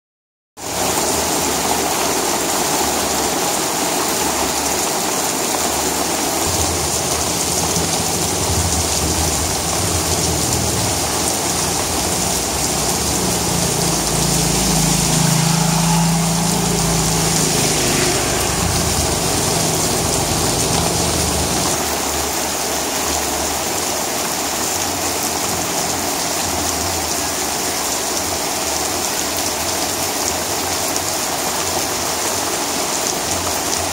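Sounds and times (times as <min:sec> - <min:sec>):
heavy rain on concrete: 0:00.6 - 0:33.9
low rumble: 0:06.6 - 0:21.8.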